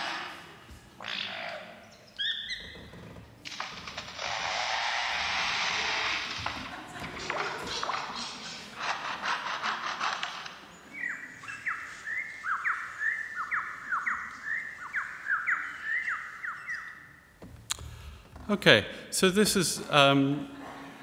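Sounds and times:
bird mimicking chainsaws: 3.5 - 6.3.

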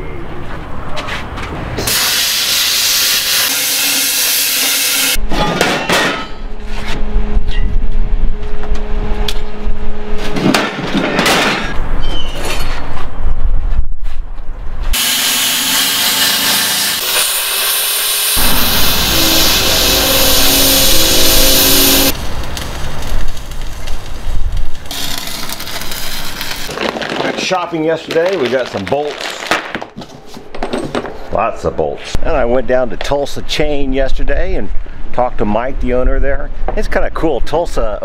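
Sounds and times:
plasma cutter hissing: 1.8 - 5.2, 15.0 - 22.1
steady hum: 18.1 - 23.1
steel pieces clanking: 24.9 - 27.6.

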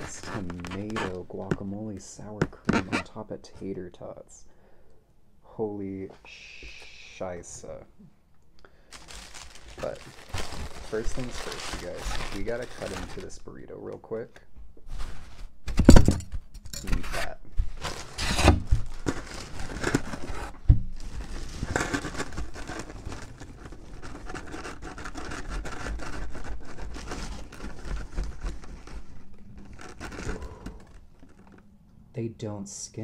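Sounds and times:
paper crinkling: 8.9 - 13.4, 17.7 - 31.7
plastic knife sawing through tortilla: 24.2 - 28.1.

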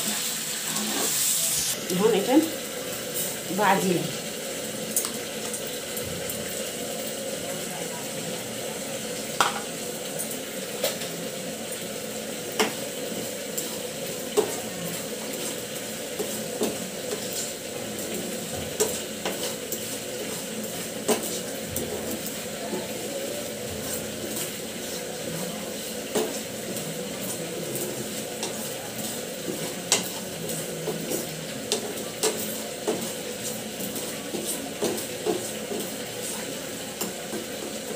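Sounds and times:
spatula knocking a pan: 9.4 - 9.7.

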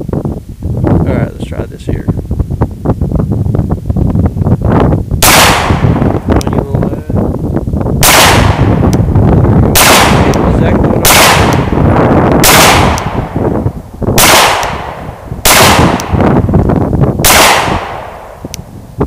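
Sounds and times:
pistol shots with echo: 5.2 - 6.0, 8.0 - 8.8, 9.7 - 11.8, 12.4 - 13.4, 14.2 - 16.3, 17.2 - 18.4.

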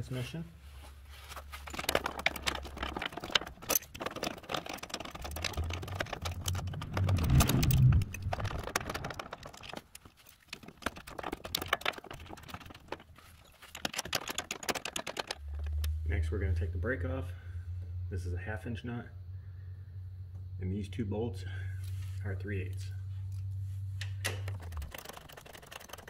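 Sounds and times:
low rumbling handling: 1.0 - 18.3
ratcheting wrench clicking: 1.7 - 10.1.

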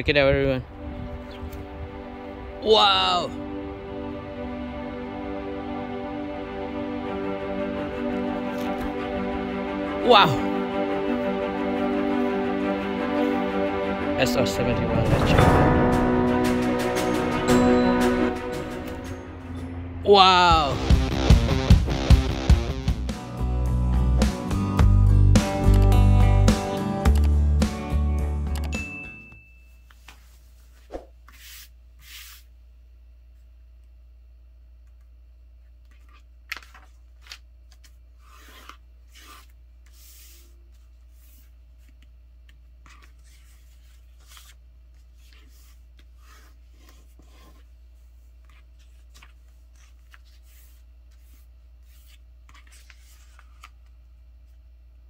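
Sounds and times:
low hum: 0.6 - 9.9, 10.5 - 24.1
paper rustling and folding: 8.4 - 9.1, 35.7 - 54.6.

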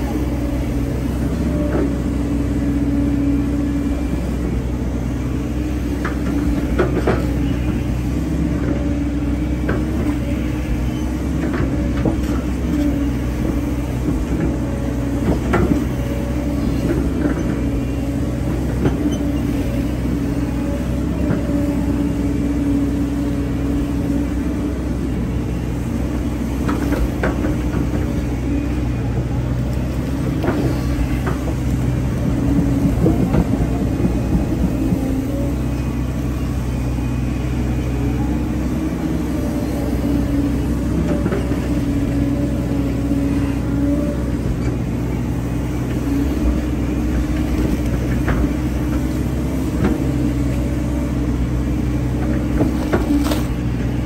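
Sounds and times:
excavator diesel engine: 0.0 - 54.0
machine knocks and clanks: 30.3 - 35.3.

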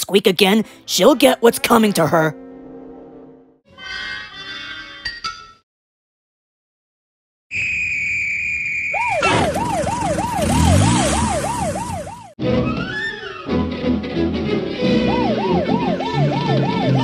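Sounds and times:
police whistle blast: 7.5 - 9.6
police siren wailing: 7.6 - 13.6, 14.8 - 17.0.

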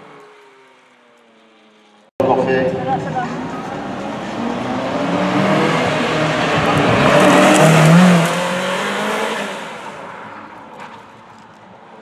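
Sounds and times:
sports car accelerating past: 3.2 - 10.4.

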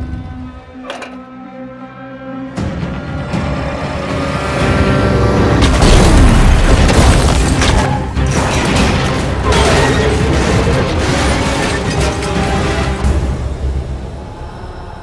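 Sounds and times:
dramatic action music: 0.0 - 15.0
booming impacts and crashes: 5.5 - 13.8.

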